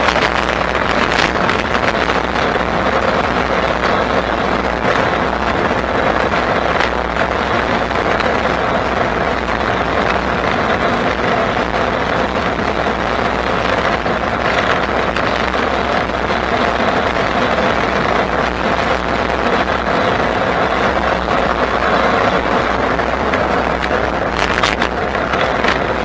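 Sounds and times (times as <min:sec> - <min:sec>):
road noise from moving bike: 0:00.0 - 0:26.0.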